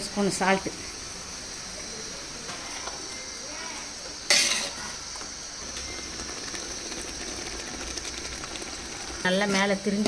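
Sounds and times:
masala sizzling: 0.0s - 10.0s
ladle stirring in metal pot: 5.8s - 10.0s.

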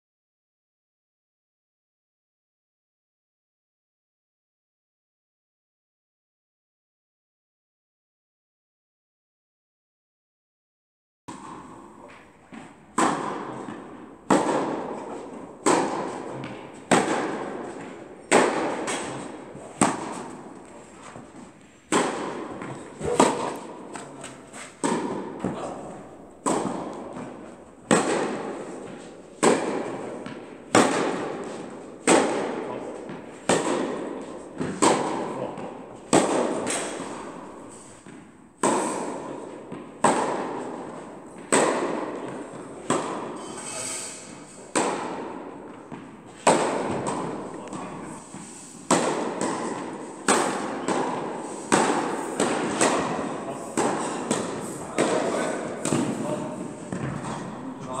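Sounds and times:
tennis balls struck by racquets: 11.3s - 58.0s.

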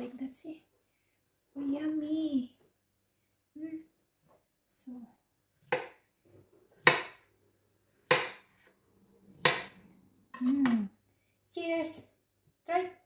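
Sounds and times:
knife chopping on plastic board: 5.6s - 6.0s, 6.8s - 7.3s, 8.0s - 8.7s, 9.4s - 9.8s.

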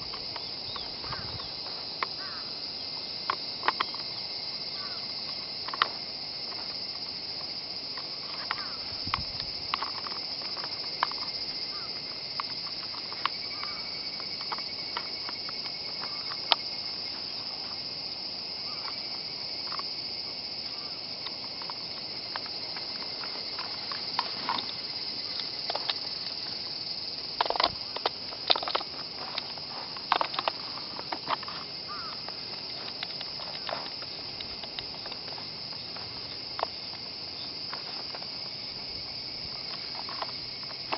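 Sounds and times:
insects chorus: 0.0s - 40.9s
rifle parts clicking and knocking: 3.3s - 4.1s, 5.3s - 6.7s, 8.0s - 11.5s, 21.2s - 26.6s, 27.2s - 37.1s, 39.6s - 40.9s.

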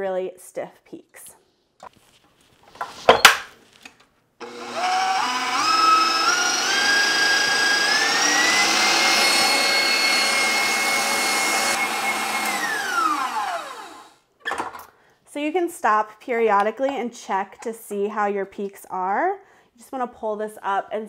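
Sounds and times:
stand mixer motor whining: 4.4s - 14.2s.

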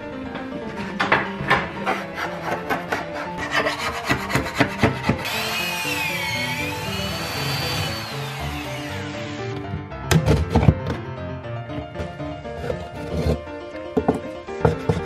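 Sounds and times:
hand scraper scraping: 1.7s - 9.6s, 12.0s - 13.5s
electric drill boring into wood: 5.2s - 9.7s.

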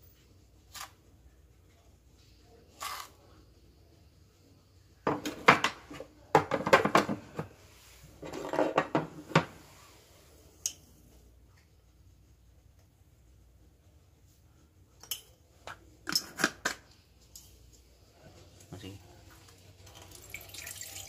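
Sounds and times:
tableware clinking and rattling: 8.2s - 9.5s, 16.0s - 16.8s.

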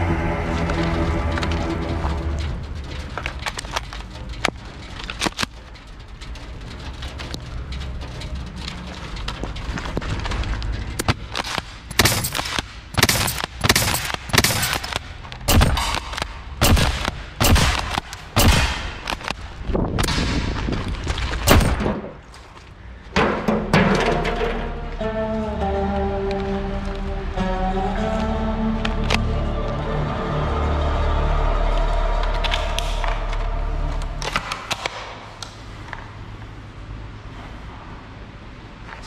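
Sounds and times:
pellets hitting steel targets: 11.0s - 19.4s
airsoft shotgun shots: 11.4s - 19.0s.

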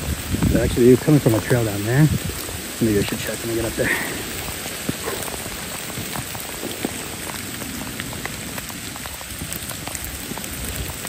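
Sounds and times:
raindrops pattering: 0.0s - 11.0s
steady rain falling: 0.0s - 11.0s.

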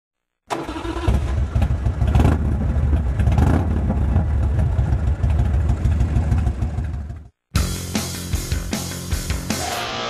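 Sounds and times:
motorcycle engine throbbing: 1.1s - 7.4s.

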